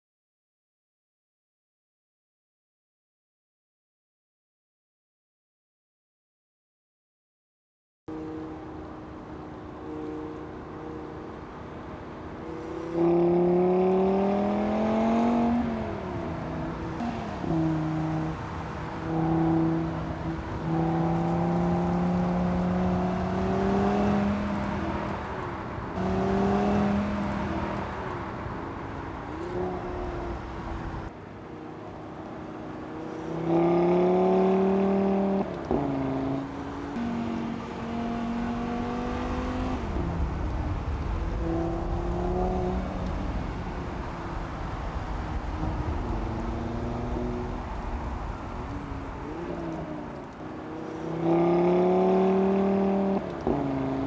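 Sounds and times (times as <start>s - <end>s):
car engine accelerating hard: 26.0s - 28.2s, 32.8s - 54.0s.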